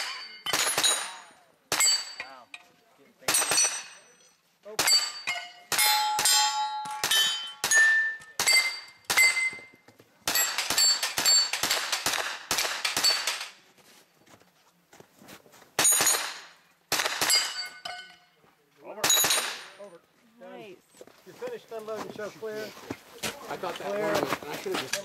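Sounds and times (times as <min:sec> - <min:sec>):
gunshots: 0:00.0 - 0:02.2, 0:03.2 - 0:04.0, 0:10.2 - 0:13.6, 0:15.8 - 0:17.6, 0:19.0 - 0:19.8
steel plates clanging: 0:03.3 - 0:09.6.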